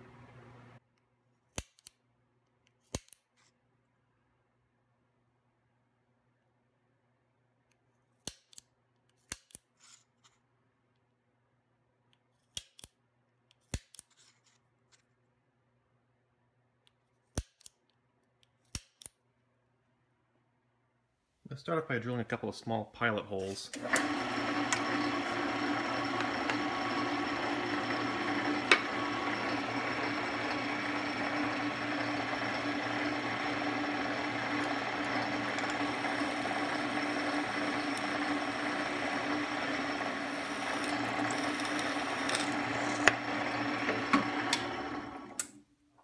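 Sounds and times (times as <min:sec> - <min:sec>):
drill press motor hum: 0:23.7 - 0:45.6
drill bit drilling metal plate: 0:23.8 - 0:45.4.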